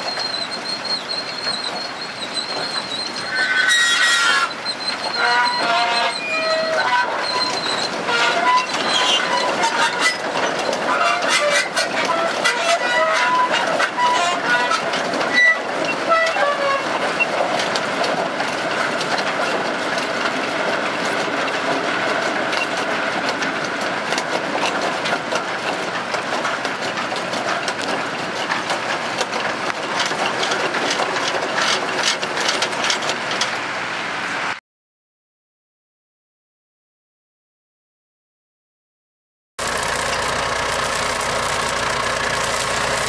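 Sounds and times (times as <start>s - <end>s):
harvester machinery clattering: 4.5s - 33.8s, 39.6s - 43.0s.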